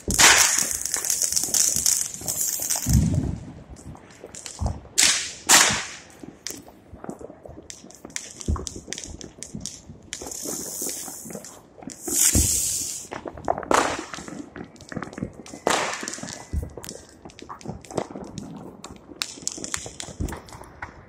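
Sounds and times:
firework hissing: 0.0 - 3.3, 10.2 - 13.2
fireworks pops and bangs: 0.0 - 21.0.

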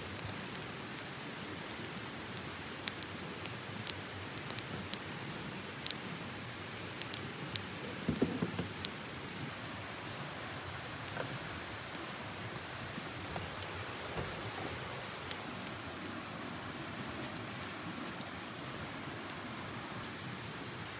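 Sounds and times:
campfire crackling: 0.0 - 20.5
steady hiss: 0.0 - 20.9.

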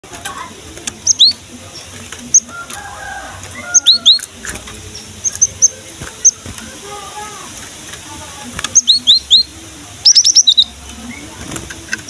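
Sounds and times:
bird chirps bending downward: 1.0 - 2.5, 8.7 - 11.3.

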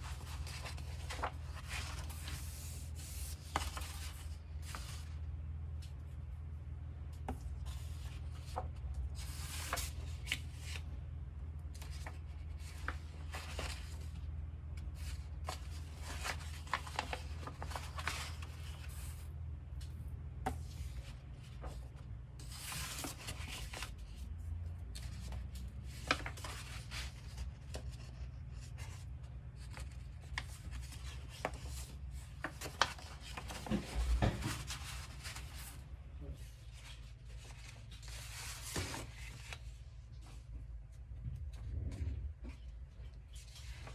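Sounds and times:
paper rustling and crinkling: 0.0 - 6.2, 7.2 - 11.0, 11.6 - 43.9
low steady hum: 0.0 - 43.9.

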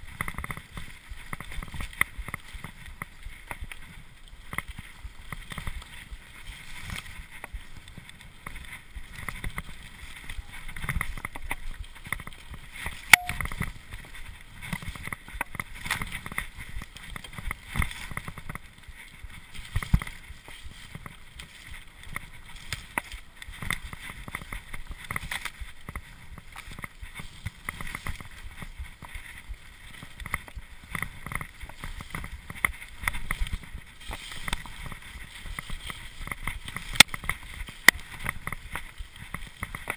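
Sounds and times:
mountain bike rattling on dirt trail: 0.0 - 39.9.

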